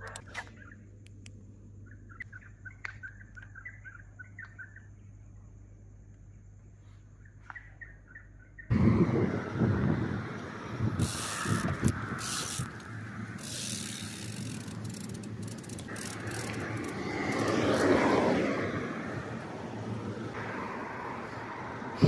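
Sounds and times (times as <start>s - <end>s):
wind on microphone: 8.7s - 12.8s
bicycle tyre road noise: 8.7s - 22.0s.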